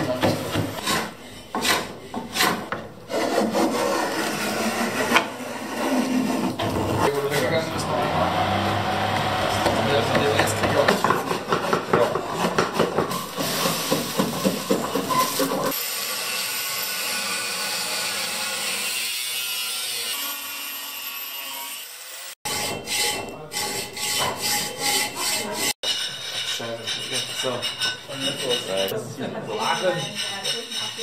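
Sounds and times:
hand tool scraping metal: 0.0 - 7.7, 22.4 - 31.0
hand plane shaving wood: 0.4 - 7.5
angle grinder on steel: 3.9 - 11.0, 15.7 - 28.9.

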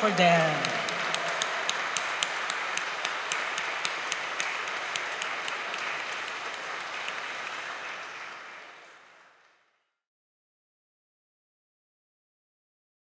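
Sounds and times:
congregation applause: 0.0 - 9.7.

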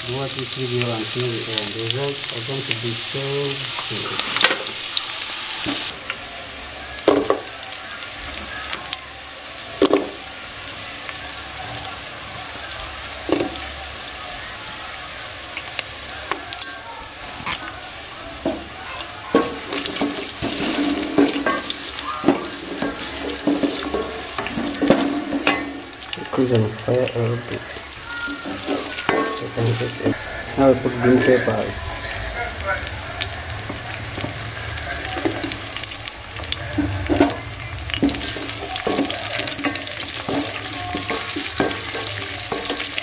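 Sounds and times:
vegetables sizzling in oil: 0.0 - 43.0
wooden spatula scraping pot: 19.4 - 25.7.

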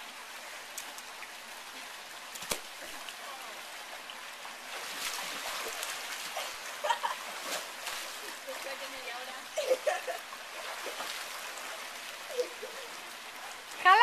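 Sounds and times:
pool water splashing: 0.0 - 14.0
pool waterfall trickling: 0.0 - 14.0
girls laughing: 6.4 - 7.3, 9.5 - 10.2.

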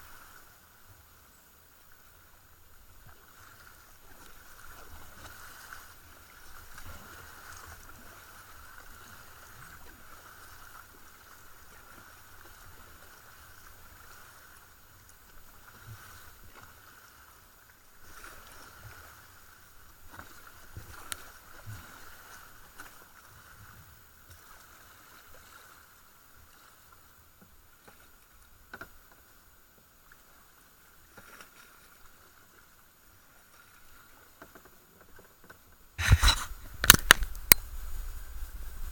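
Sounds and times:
paddle splashing and dripping: 1.7 - 29.4.

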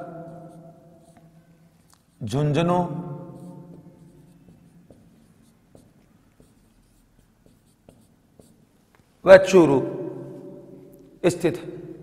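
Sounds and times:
pen scratching handwriting: 0.0 - 1.3, 3.3 - 8.8.

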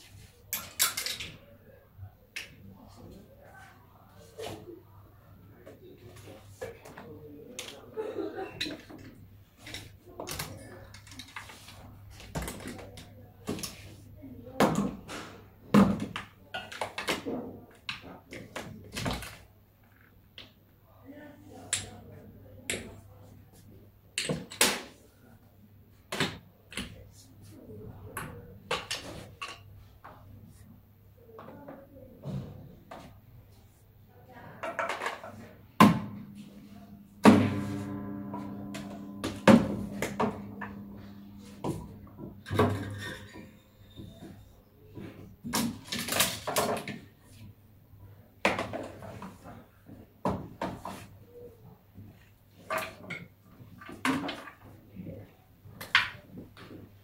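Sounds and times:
objects knocking in clutter: 34.7 - 47.0.

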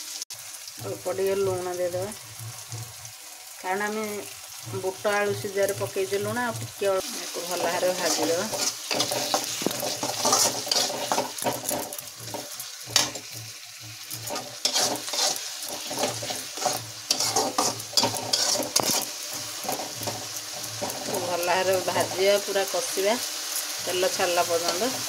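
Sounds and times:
masala sizzling in a pan: 0.0 - 25.0
spatula scraping a pan: 7.0 - 22.3.

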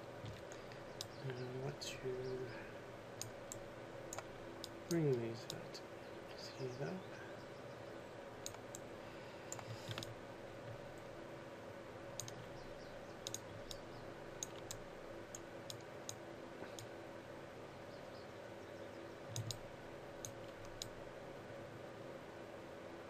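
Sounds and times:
faint computer hum: 0.0 - 23.0
mouse and keyboard clicks: 9.5 - 10.2, 12.2 - 12.5, 13.2 - 13.8, 14.4 - 16.9, 19.3 - 19.6.

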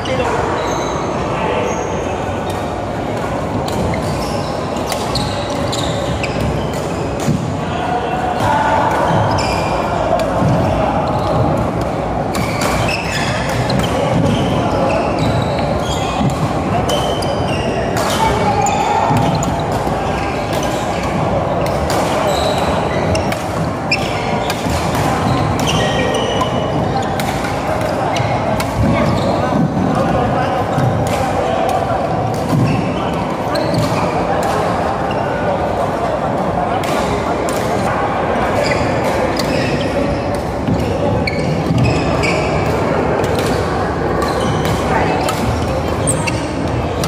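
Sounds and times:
shoes squeaking on court floor: 0.0 - 7.6, 8.4 - 35.8, 37.0 - 47.0
rackets hitting shuttlecock: 2.4 - 4.2, 4.8 - 7.6, 8.3 - 32.9, 36.8 - 47.0
rackets smacking shuttlecock: 17.9 - 29.7, 40.3 - 46.4.

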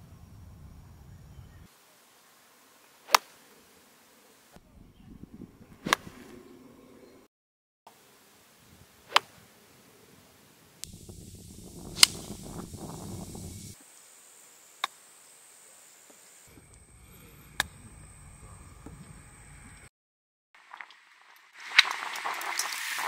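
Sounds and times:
golf club striking ball: 5.8 - 6.2, 10.8 - 13.6.

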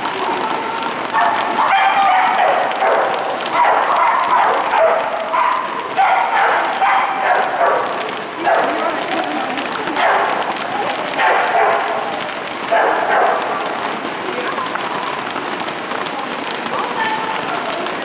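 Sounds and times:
small dog barking: 1.2 - 9.1, 9.9 - 10.5, 11.1 - 12.1, 12.7 - 13.5.

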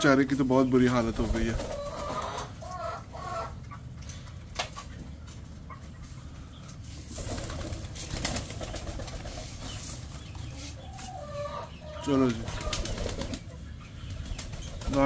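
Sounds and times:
pigeons cooing: 1.0 - 3.6, 7.1 - 15.0
wing flaps: 7.1 - 9.6, 12.4 - 13.5.

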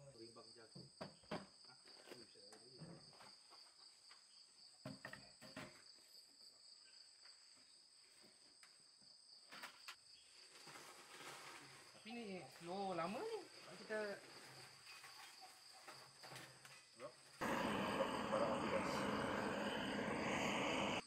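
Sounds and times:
insects trilling: 13.0 - 21.0.

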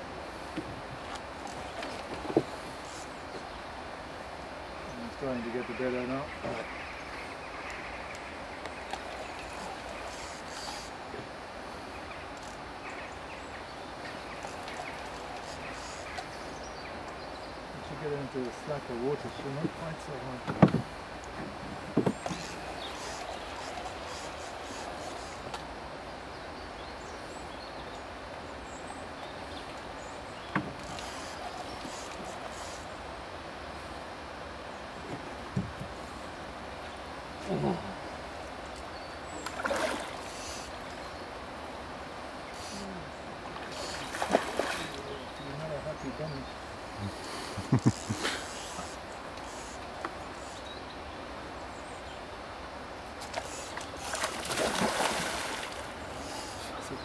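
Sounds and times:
river flowing around boat: 0.0 - 57.0
fish thrashing and splashing: 53.3 - 55.8.

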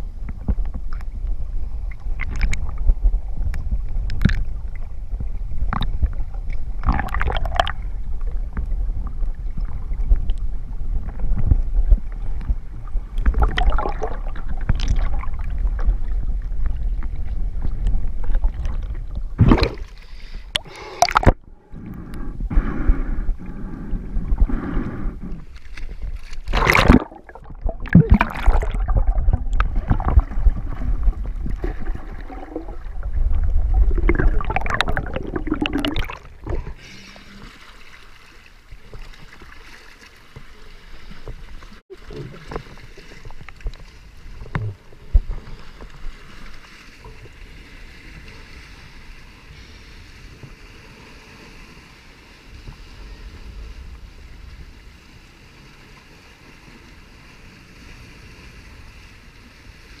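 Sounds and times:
muffled underwater rumble: 0.0 - 37.6
sharp splashes: 26.2 - 30.7.

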